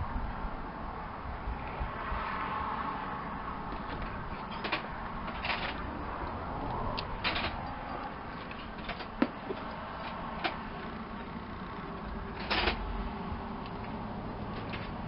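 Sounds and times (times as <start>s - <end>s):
steady background noise: 0.0s - 15.0s
sharp metal clicks: 4.0s - 12.9s.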